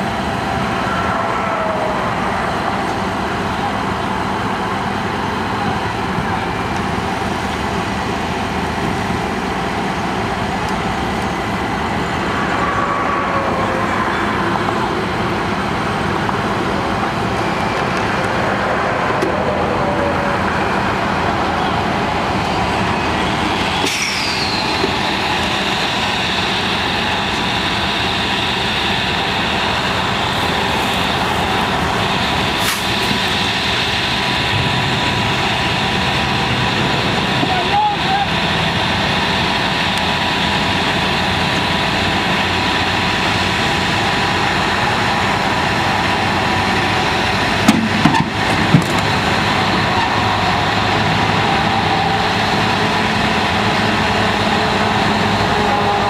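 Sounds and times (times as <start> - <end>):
diesel engines under load: 0.0 - 56.0
hiss with falling whistle: 23.0 - 28.5.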